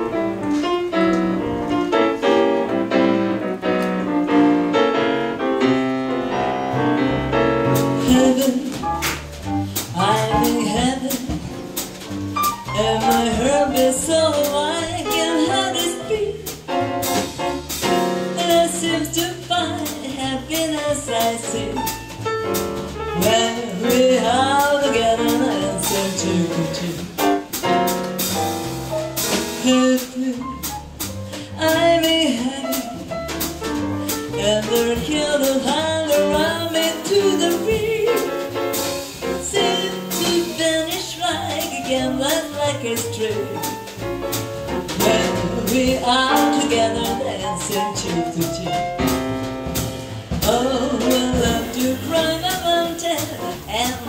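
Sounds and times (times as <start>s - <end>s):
piano: 0.0s - 54.0s
upright bass: 0.0s - 54.0s
drums and cymbals: 7.2s - 54.0s
woman singing: 8.0s - 8.9s, 9.9s - 11.5s, 12.8s - 16.5s, 18.2s - 22.0s, 23.2s - 27.2s, 29.6s - 30.7s, 31.5s - 33.0s, 34.3s - 38.4s, 39.4s - 43.8s, 45.0s - 49.0s, 50.3s - 54.0s.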